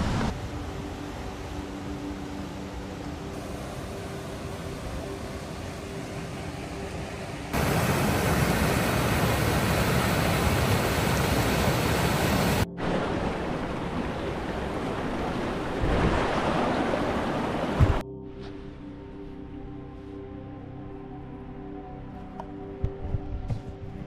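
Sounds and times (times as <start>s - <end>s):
river rushing over rocks: 7.5s - 18.0s.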